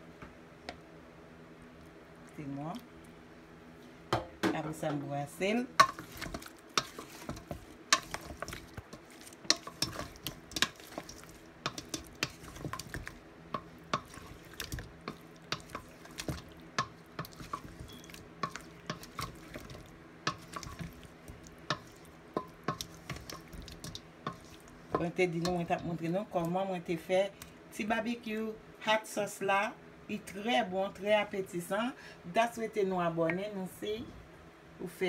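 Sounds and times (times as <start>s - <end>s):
wooden spoon scraping metal bowl: 5.8s - 26.0s.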